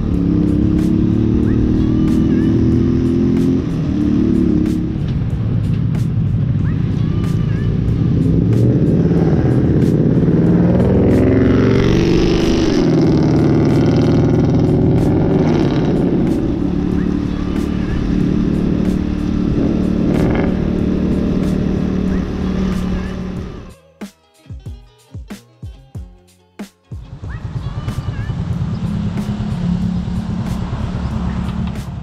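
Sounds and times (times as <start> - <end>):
motorcycle engine revving: 0.0 - 23.8, 27.0 - 32.0.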